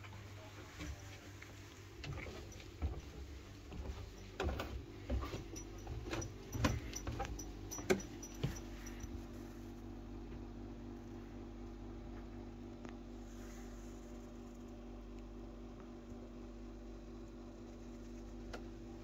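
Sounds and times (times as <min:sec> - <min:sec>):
steady low hum: 0:00.0 - 0:19.0
footsteps on wooden floorboards: 0:00.7 - 0:09.0.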